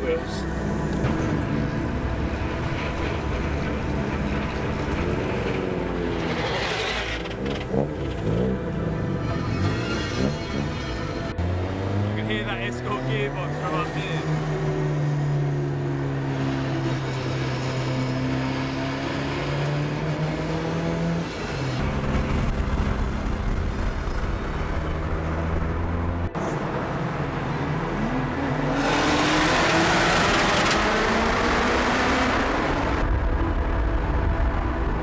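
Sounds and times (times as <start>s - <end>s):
car engine droning: 0.0s - 35.0s
engine revving up: 2.6s - 33.2s
rush of wind and road noise: 13.8s - 35.0s.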